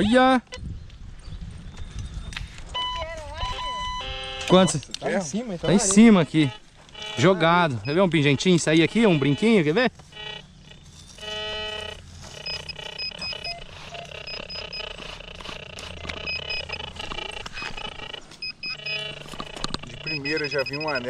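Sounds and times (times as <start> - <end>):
metal detector beeping: 1.7 - 21.0
knife scraping in sand: 10.9 - 16.3.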